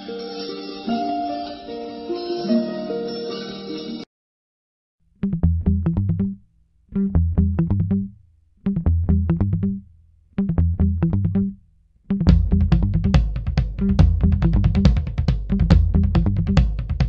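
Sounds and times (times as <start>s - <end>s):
bass line with sharp beat: 5.2s - 17.0s.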